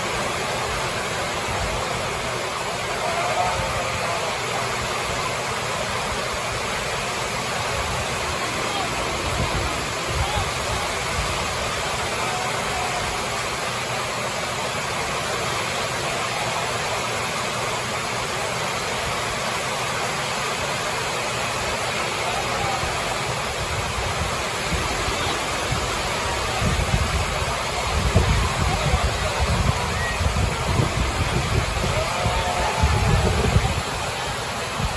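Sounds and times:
heavy rain on a roof: 0.0 - 34.9
low rumbling wind gusts: 26.4 - 34.9.

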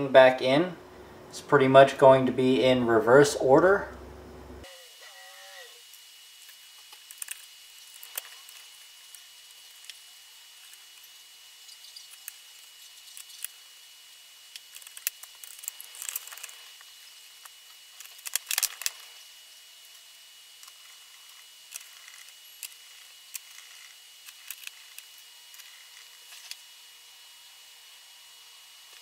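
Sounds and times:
plastic parts clicking together: 14.6 - 16.6, 18.0 - 19.0, 20.6 - 26.6.

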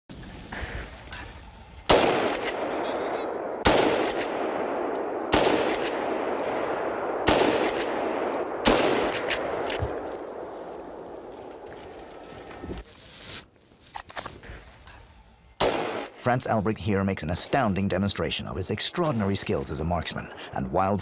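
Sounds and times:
rifle shots echoing: 1.8 - 11.3, 15.6 - 16.2.

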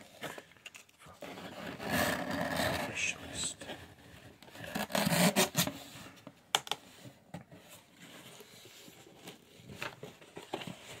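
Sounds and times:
cardboard rubbing and scraping: 1.2 - 3.2.

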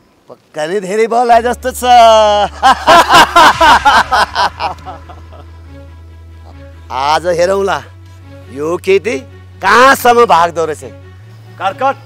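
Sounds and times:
quiet background music: 0.8 - 12.0
man's voice: 1.0 - 4.0.

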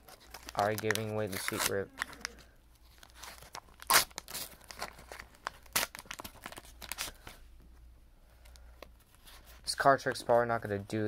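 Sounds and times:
wrapper crinkling and tearing: 0.0 - 7.4.

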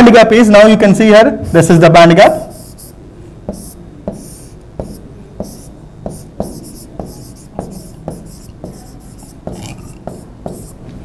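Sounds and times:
stylus scratching on a screen: 2.5 - 10.8.

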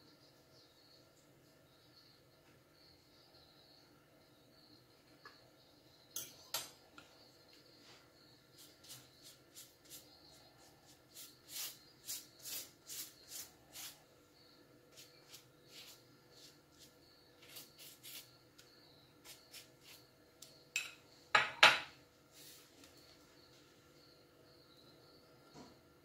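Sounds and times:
kitchenware clattering: 20.8 - 21.9.

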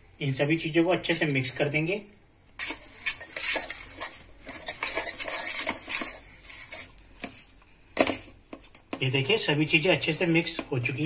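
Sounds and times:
hand mixing in metal bowl: 2.6 - 11.0.

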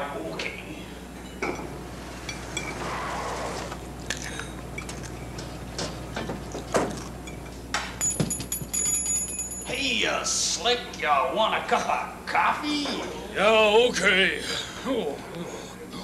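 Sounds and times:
dishes clinking and knocking: 1.2 - 2.8, 4.1 - 9.6.

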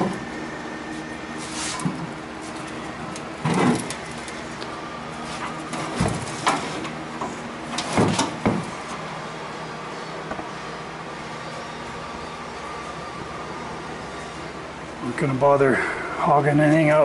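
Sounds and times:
steady low hum: 0.0 - 17.0
metal fender clunks and scrapes: 3.4 - 4.1, 5.2 - 7.0.

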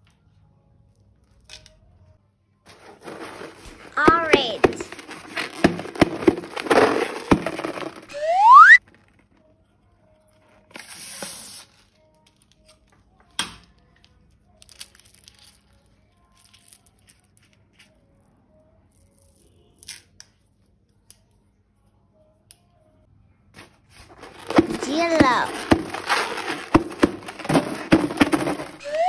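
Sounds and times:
soft background music: 0.0 - 4.6, 8.8 - 26.4
plastic crinkling: 2.7 - 8.1, 24.0 - 28.8
plastic tearing: 2.7 - 8.1.

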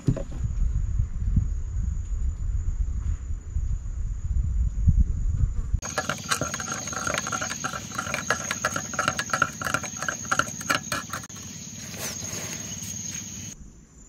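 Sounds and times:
insect chorus: 5.8 - 14.0.

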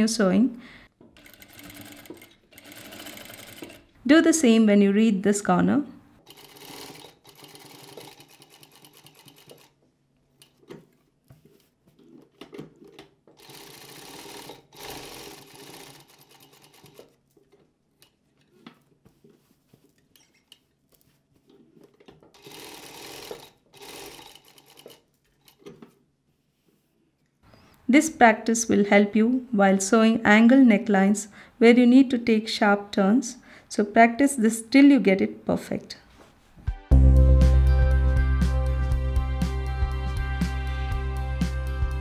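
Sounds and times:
sewing machine stitching: 1.2 - 3.9, 6.3 - 9.8, 12.0 - 17.2, 22.0 - 25.9.

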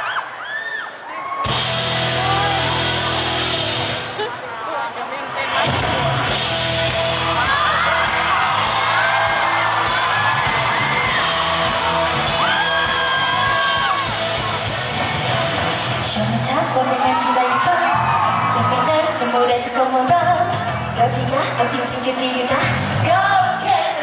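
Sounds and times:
live pop band playing: 1.4 - 4.3, 5.6 - 24.0
voices whooping and singing: 5.6 - 20.7.

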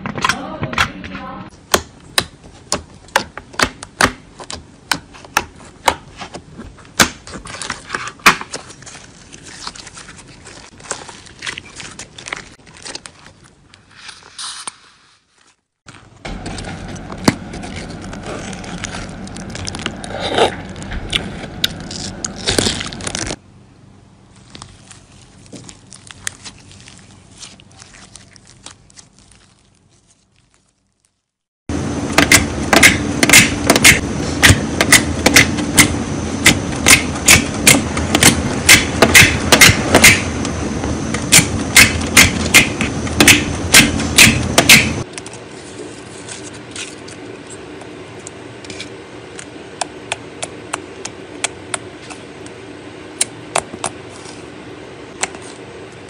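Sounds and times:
hands squishing slime: 24.4 - 31.2.

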